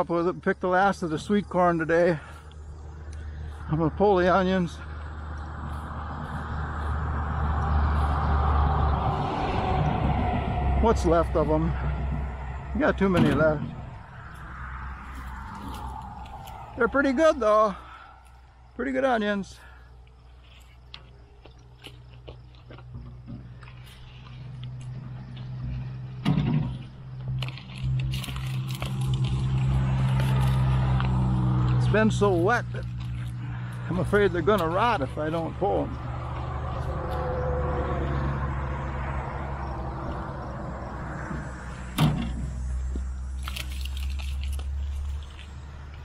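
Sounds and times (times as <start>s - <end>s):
low outdoor rumble: 0.0s - 46.0s
leafy tops rustling: 14.2s - 22.0s, 27.3s - 37.3s, 43.2s - 46.0s
onions pulled from soil crunching: 15.0s - 17.2s, 43.2s - 46.0s.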